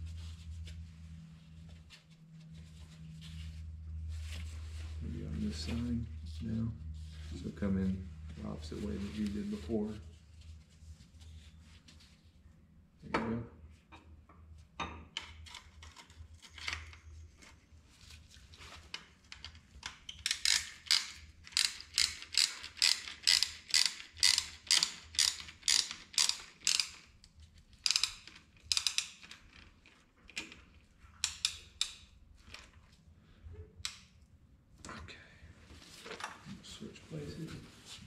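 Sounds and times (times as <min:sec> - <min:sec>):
ratchet clicking: 0:20.1 - 0:27.1, 0:27.8 - 0:29.4.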